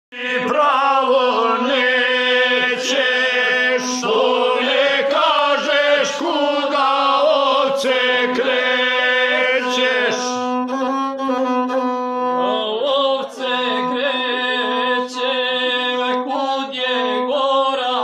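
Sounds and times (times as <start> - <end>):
man chanting: 0.1 - 10.6, 12.4 - 18.0
bowed single-string fiddle: 7.7 - 17.4.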